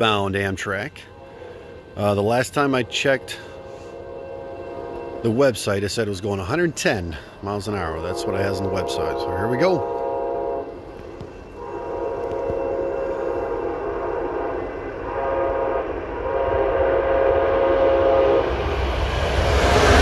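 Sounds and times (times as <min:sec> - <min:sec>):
rush of passing train: 0:00.0 - 0:20.0
train air horn blasts: 0:01.0 - 0:05.5, 0:07.9 - 0:10.9, 0:11.5 - 0:18.6.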